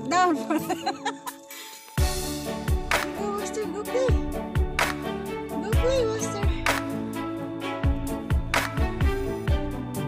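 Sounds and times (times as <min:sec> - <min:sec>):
steady drum beat: 0:02.0 - 0:07.2, 0:07.8 - 0:09.8.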